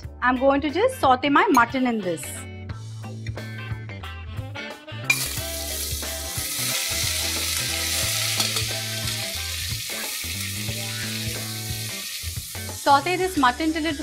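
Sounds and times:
meat sizzling in hot oil: 5.1s - 14.0s.

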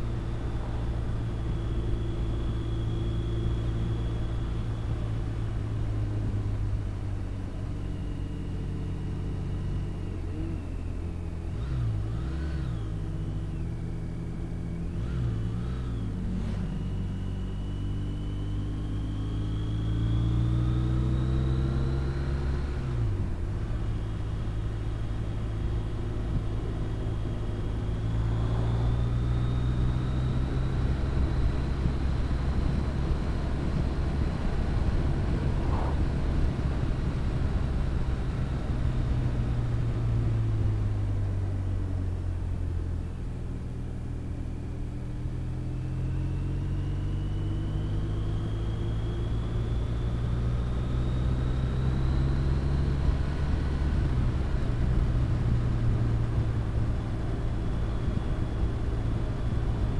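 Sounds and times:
wind rush: 35.3s - 36.4s.

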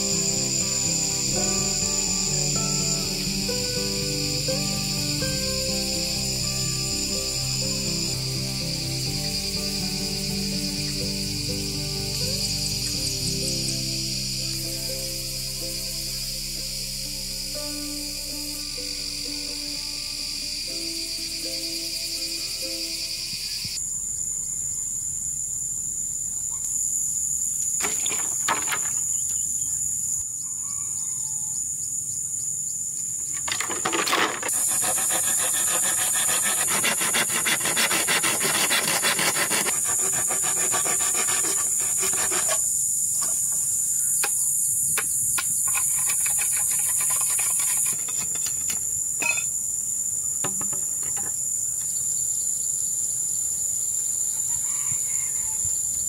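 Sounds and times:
insects droning: 0.0s - 56.0s
hand saw rasping through bamboo: 33.5s - 43.4s, 45.6s - 48.8s.

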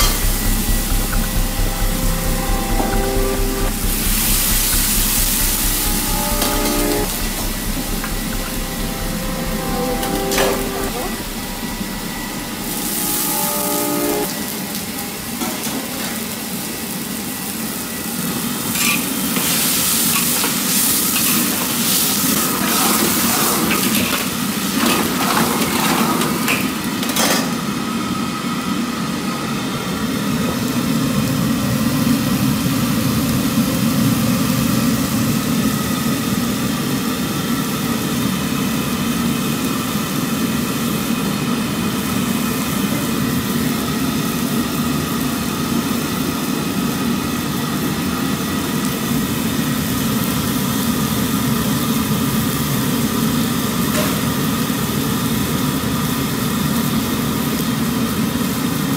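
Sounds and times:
food sizzling: 0.0s - 16.2s
gas burner roaring: 0.0s - 16.4s.

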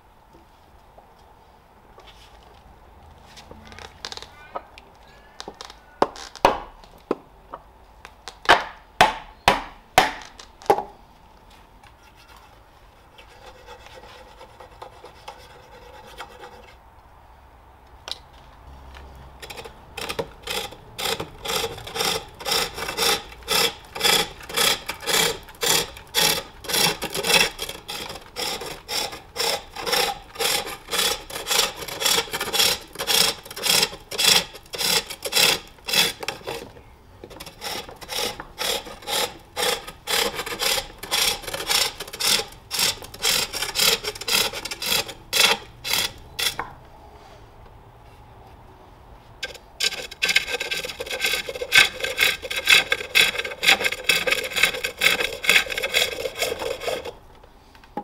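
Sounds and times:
tool scraping spinning wood: 12.0s - 16.8s, 19.2s - 46.7s, 49.4s - 57.3s.

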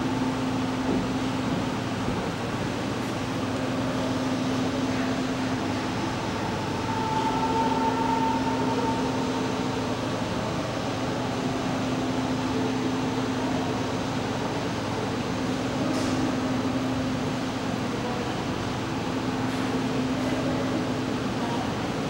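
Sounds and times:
mechanical hum: 0.0s - 22.0s
low held tone: 3.4s - 14.3s.

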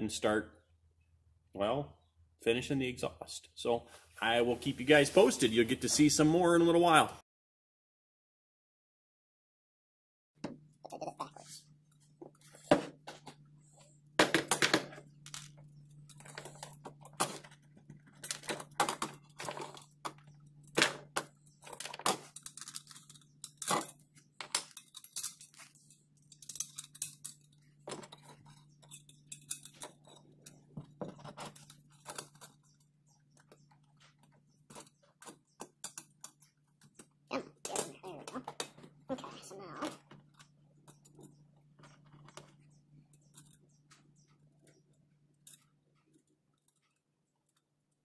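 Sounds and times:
metal parts clinking and knocking: 14.2s - 38.8s.

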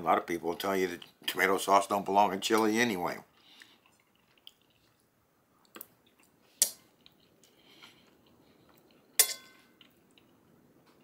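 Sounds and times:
faint chewing: 3.3s - 11.0s
metal fork clinking on plate: 9.2s - 9.7s.

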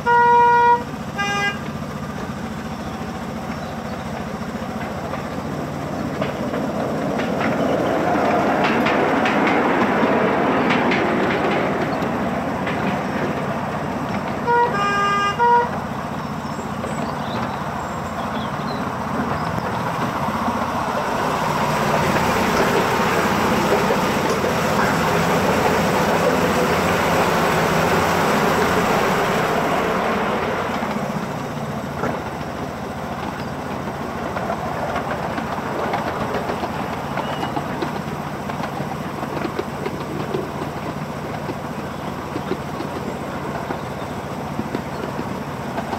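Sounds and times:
train whistle toots: 0.0s - 1.7s, 14.4s - 15.9s
miniature train running on track: 0.0s - 45.9s.

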